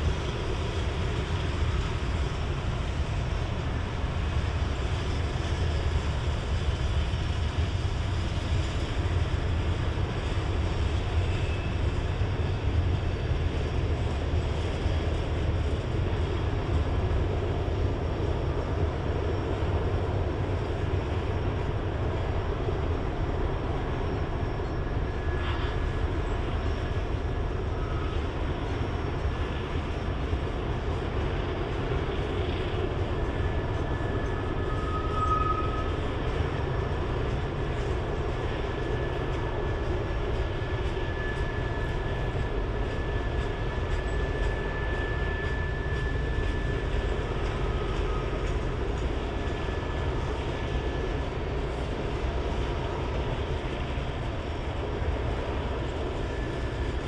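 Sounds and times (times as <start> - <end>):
diesel locomotive drone: 0.0 - 57.0
steel wheels rumbling on rail: 0.0 - 57.0
high wheel squeals: 33.2 - 37.9, 38.8 - 51.0.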